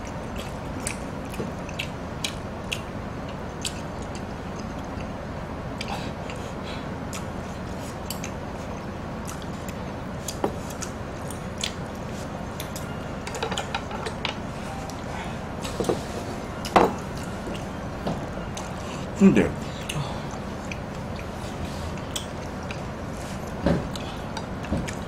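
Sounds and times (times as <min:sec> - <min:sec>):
chopsticks clicking on dishes: 0:12.6 - 0:14.4
dishes clattering: 0:13.2 - 0:14.4, 0:15.7 - 0:17.2.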